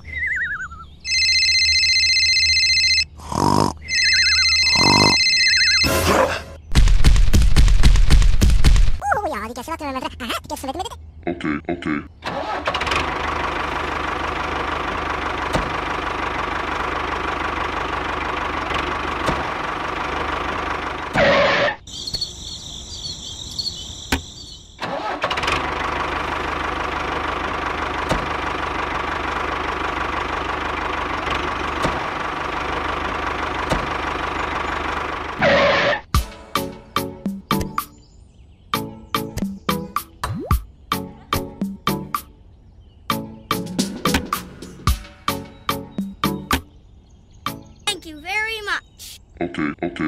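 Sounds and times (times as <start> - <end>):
model tractor engine running: 12.3 - 21.6, 24.8 - 35.5.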